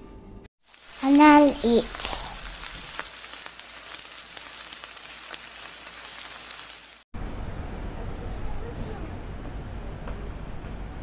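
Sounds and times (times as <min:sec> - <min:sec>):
food sizzling in a pan: 0:00.6 - 0:07.1.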